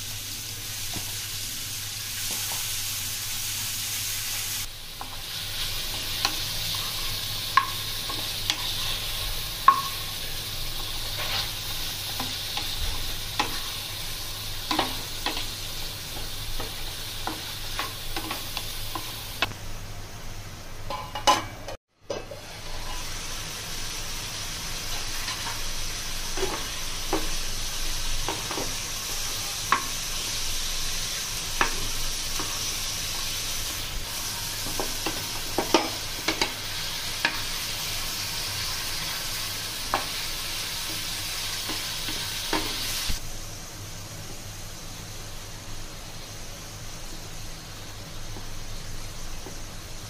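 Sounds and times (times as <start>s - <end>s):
food sizzling in a frying pan: 0.0s - 50.0s
spatula scraping a pan: 5.0s - 19.4s, 22.3s - 23.3s.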